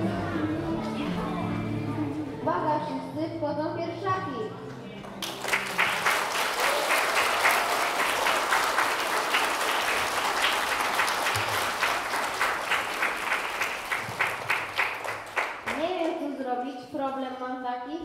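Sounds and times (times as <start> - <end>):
audience applauding: 5.1 - 15.9.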